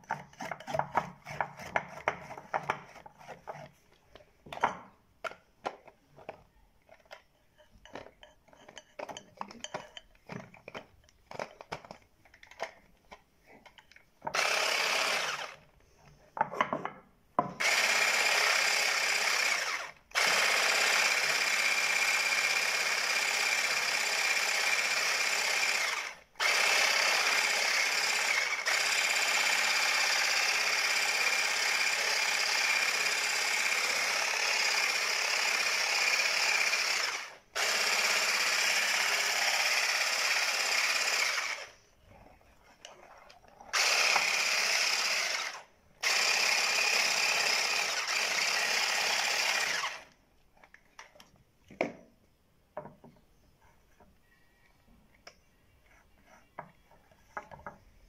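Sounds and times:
beaters clicking and scraping in bowl: 6.9 - 12.7
electric hand mixer whining: 14.3 - 15.6, 17.6 - 41.8, 43.7 - 50.1.

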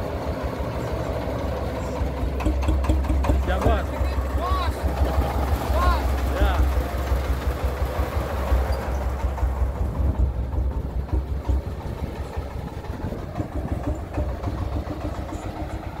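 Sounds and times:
engine humming driving off: 0.0 - 16.0.

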